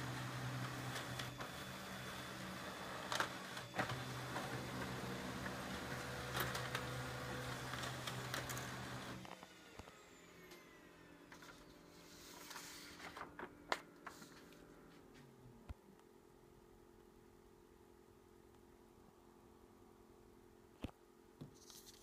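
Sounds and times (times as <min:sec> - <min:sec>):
printer motor and roller hum: 0:00.0 - 0:13.2.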